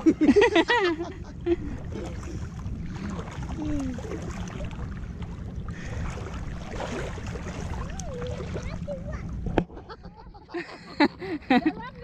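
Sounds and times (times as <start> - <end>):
low rumble: 0.0 - 12.0
sea water lapping: 0.0 - 12.0.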